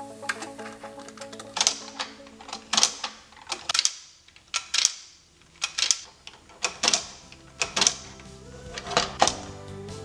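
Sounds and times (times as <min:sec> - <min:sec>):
plastic toy bricks clicking: 0:00.3 - 0:09.5.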